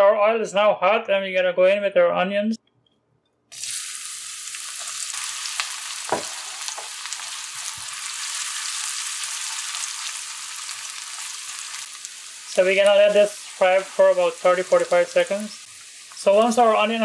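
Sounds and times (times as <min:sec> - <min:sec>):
onions sizzling in hot oil: 0:03.5 - 0:17.0.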